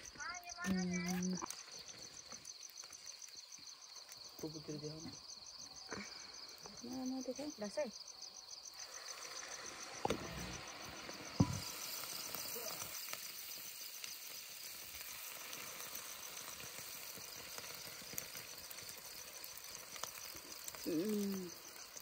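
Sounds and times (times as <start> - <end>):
food deep-frying in oil: 8.4 - 22.0.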